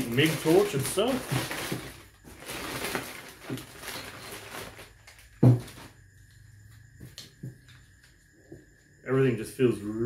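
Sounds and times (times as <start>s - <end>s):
plastic bag rustling: 0.0s - 6.0s.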